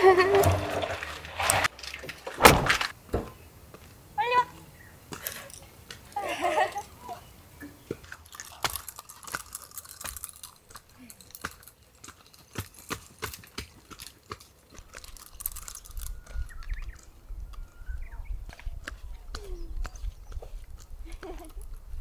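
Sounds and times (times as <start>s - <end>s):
footsteps crunching on dirt: 7.8s - 22.0s
low wind rumble on microphone: 15.4s - 22.0s.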